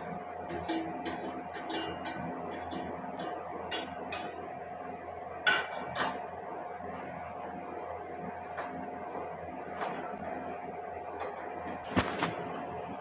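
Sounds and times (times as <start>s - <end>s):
spatula scraping a metal pan: 0.0s - 4.4s
steel plate clanking: 0.5s - 4.4s.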